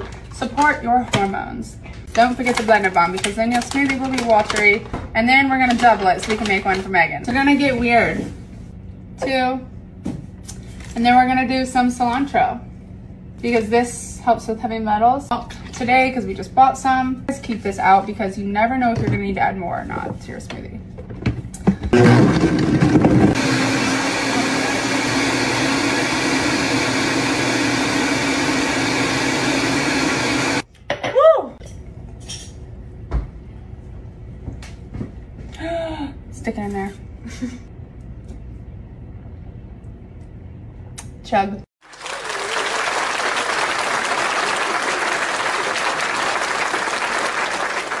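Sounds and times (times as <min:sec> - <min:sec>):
blender whirring: 0:21.9 - 0:30.6
audience applause: 0:41.8 - 0:48.0.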